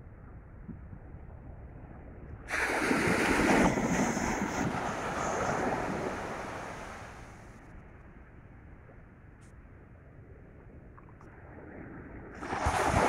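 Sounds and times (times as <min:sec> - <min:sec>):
wave breaking on sand: 0:02.5 - 0:07.2, 0:12.4 - 0:13.0
wind and surf rush: 0:02.5 - 0:07.6, 0:11.4 - 0:13.0.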